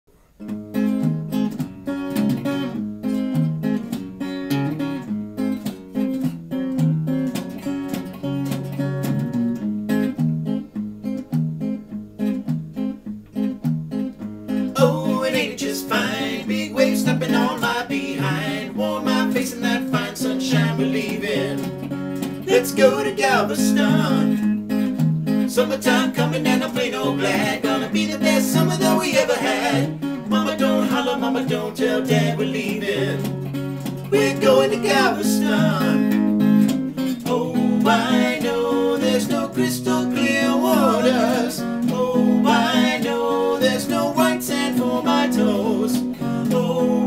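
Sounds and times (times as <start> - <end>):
guitars playing: 0.4 - 47.0
person singing: 14.8 - 21.8, 22.4 - 24.5, 25.5 - 33.4, 34.1 - 36.3, 37.2 - 47.0.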